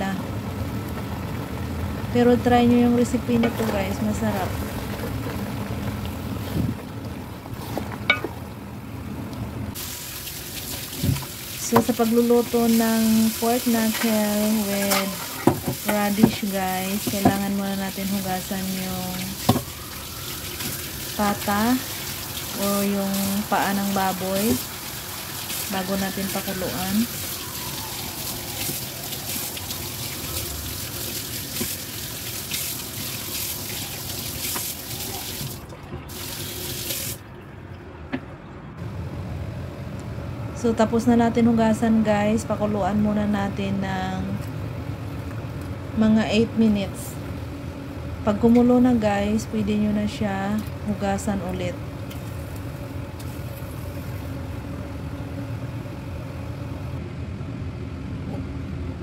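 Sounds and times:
tap water running into sink: 0:09.8 - 0:12.1, 0:27.0 - 0:37.2
meat rinsed in metal bowl: 0:09.8 - 0:37.2.

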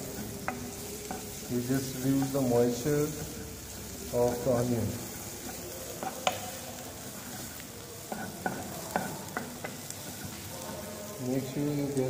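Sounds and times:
faint sizzle: 0:00.0 - 0:12.0
spoon knocking against pan: 0:06.0 - 0:06.6, 0:08.1 - 0:10.3.

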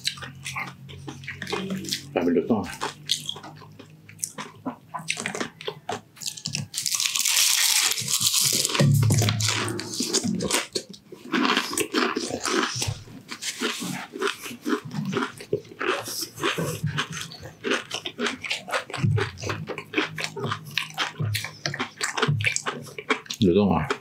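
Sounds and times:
humming mouth sounds: 0:00.0 - 0:03.6, 0:08.5 - 0:10.9
crunching crispy food: 0:05.1 - 0:24.0.

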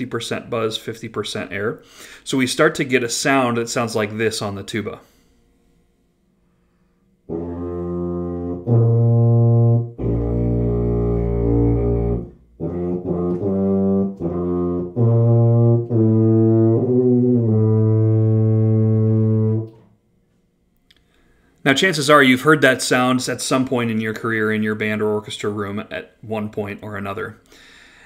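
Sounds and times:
tuba playing with pinched tone: 0:07.2 - 0:20.0.

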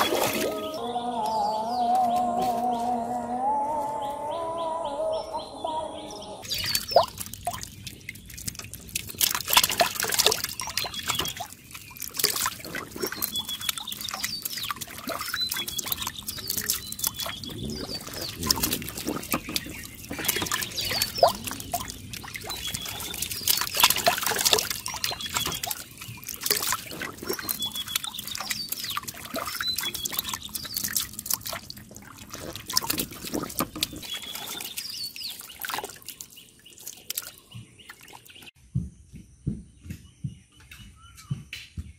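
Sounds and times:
fish splashing in shallow water: 0:00.0 - 0:00.8, 0:06.4 - 0:38.6
muddy water trickling and pouring: 0:00.0 - 0:00.8, 0:06.4 - 0:38.6.

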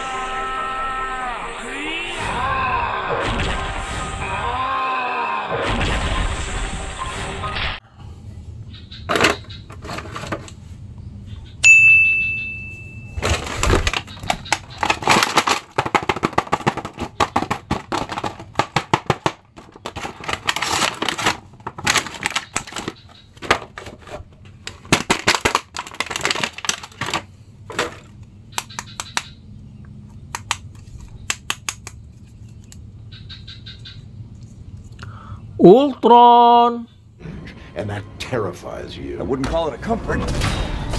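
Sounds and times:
bright ding: 0:11.6 - 0:13.2
plastic packaging crackling: 0:13.2 - 0:29.2.

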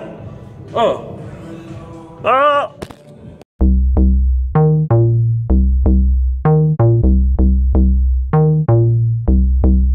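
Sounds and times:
electronic music with drum-machine beat: 0:03.6 - 0:09.9.

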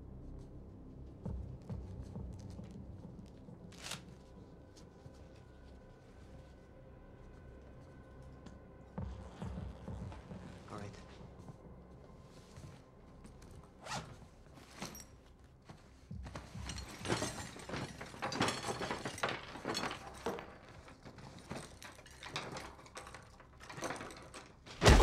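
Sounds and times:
rustling cloth: 0:00.7 - 0:08.4, 0:09.2 - 0:22.6
bag zipper: 0:13.8 - 0:14.2.

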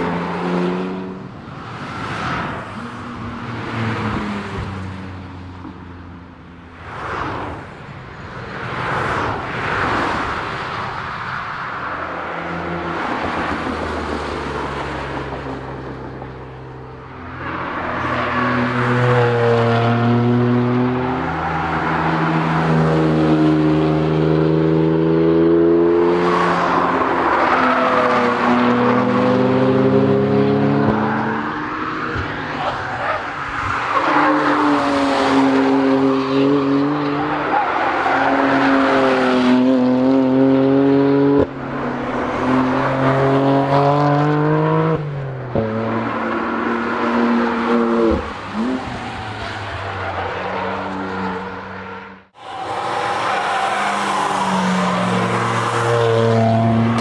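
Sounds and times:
car passing by: 0:46.4 - 0:57.0.

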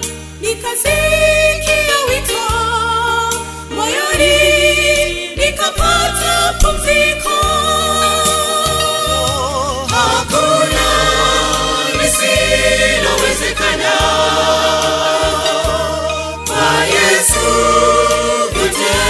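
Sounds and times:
choir singing gospel in harmony: 0:00.0 - 0:19.0
low bass line: 0:04.2 - 0:19.0.

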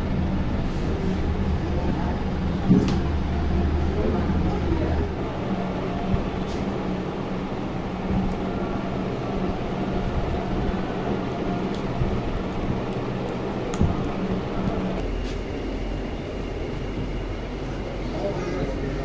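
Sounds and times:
mechanical hum: 0:00.0 - 0:19.0.

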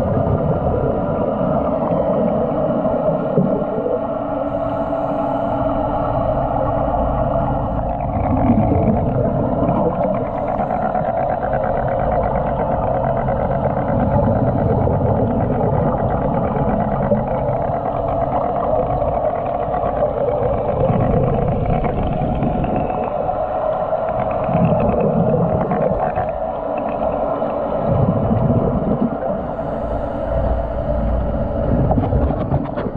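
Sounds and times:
gurgling regulator bubbles: 0:00.0 - 0:05.0, 0:05.9 - 0:32.9
muffled underwater rumbling hum: 0:00.0 - 0:32.9.

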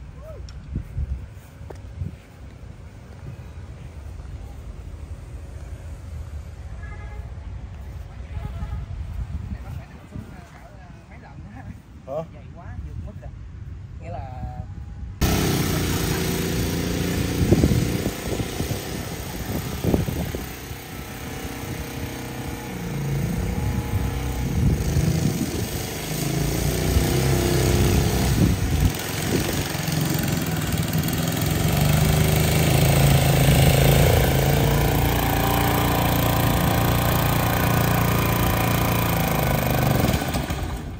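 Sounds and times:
reel mower petrol engine: 0:15.2 - 0:40.9.

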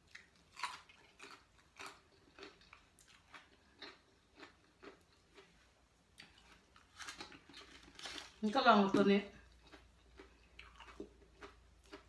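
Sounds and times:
person chewing crisp food: 0:00.0 - 0:08.4, 0:09.3 - 0:12.0.

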